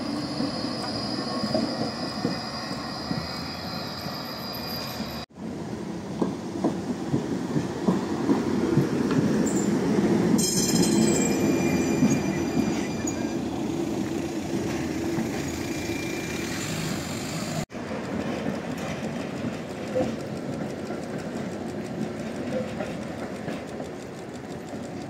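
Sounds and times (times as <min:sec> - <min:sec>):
high wheel squeal: 0:00.0 - 0:05.3, 0:10.4 - 0:17.6
tram wheels rumbling on rails: 0:00.0 - 0:25.0
knocks from tram wheels: 0:17.8 - 0:25.0.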